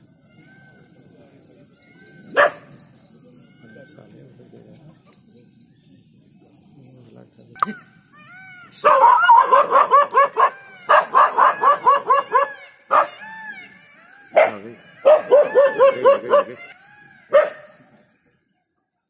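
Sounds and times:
dog barking: 2.3s - 2.7s, 8.8s - 13.2s, 14.3s - 16.6s, 17.3s - 17.7s.

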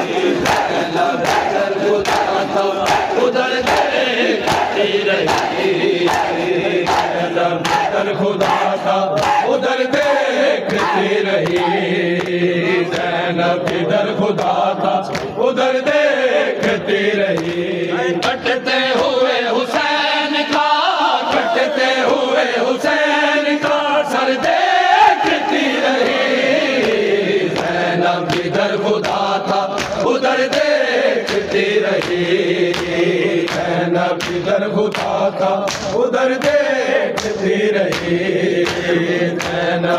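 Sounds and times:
men chanting a lament: 0.0s - 39.9s
hands slapping bare chests: 0.4s - 9.6s, 10.7s - 13.8s, 26.8s - 39.9s.

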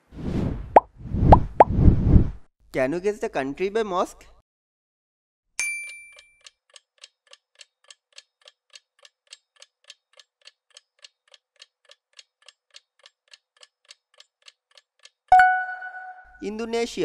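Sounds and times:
faint clock-like ticking: 6.4s - 15.3s.

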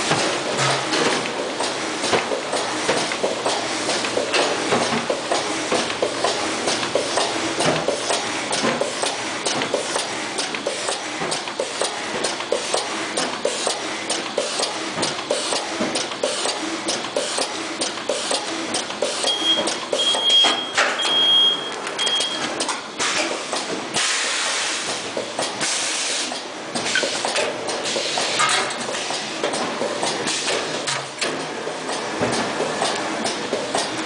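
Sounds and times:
short high beep: 19.3s - 22.4s.

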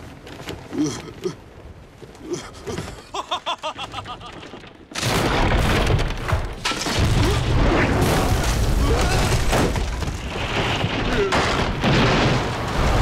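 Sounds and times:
wood and debris breaking: 3.8s - 13.0s.

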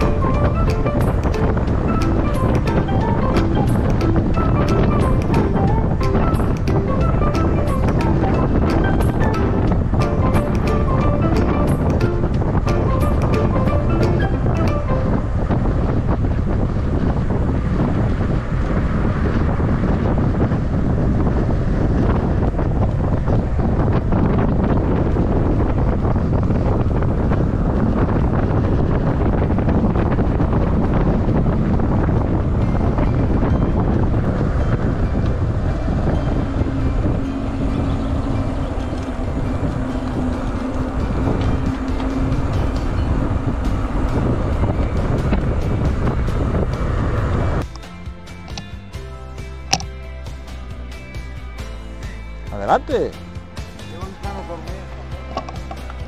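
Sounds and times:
wind buffeting microphone: 0.0s - 56.0s
steady hum: 30.7s - 49.0s.

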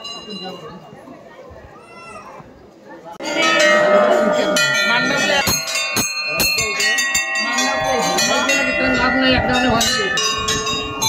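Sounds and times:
brass bells ringing: 3.2s - 11.0s.

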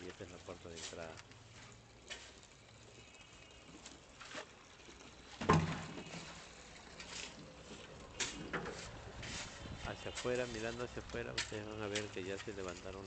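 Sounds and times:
thump: 5.4s - 6.0s.

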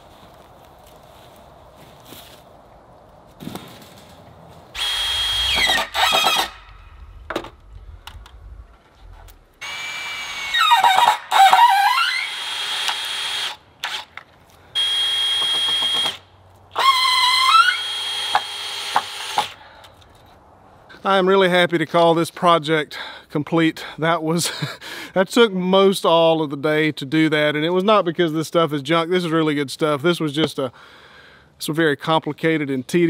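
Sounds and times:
power drill driving screws into wood: 4.8s - 6.7s, 9.6s - 14.2s, 14.8s - 19.6s.

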